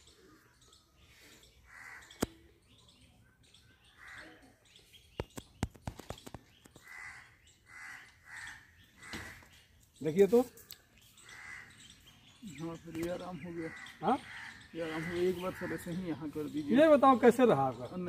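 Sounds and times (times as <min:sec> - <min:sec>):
crows cawing: 0:01.6 - 0:02.4, 0:03.9 - 0:04.6, 0:06.8 - 0:09.6, 0:11.2 - 0:12.0, 0:13.1 - 0:17.2
sharp clicks: 0:02.1 - 0:02.4.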